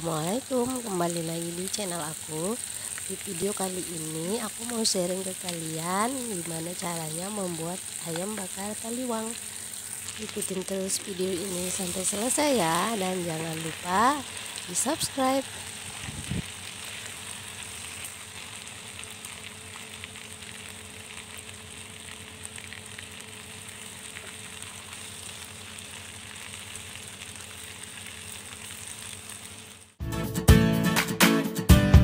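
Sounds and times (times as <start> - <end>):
chicken sizzling in hot oil: 0.0 - 30.0
acoustic guitar music: 30.0 - 32.0.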